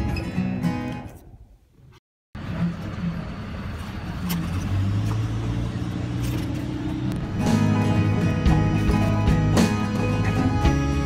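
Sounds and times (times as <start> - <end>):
acoustic guitar music: 0.0 - 1.1, 7.1 - 11.0
road traffic noise: 0.0 - 11.0
low engine hum: 2.4 - 10.6.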